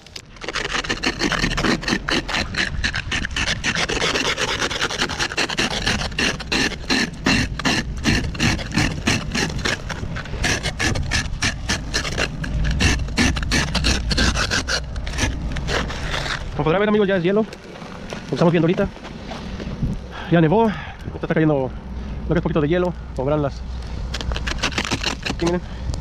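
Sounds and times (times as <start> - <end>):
ice scraper rasping on windshield: 0.3 - 17.1, 24.1 - 25.7.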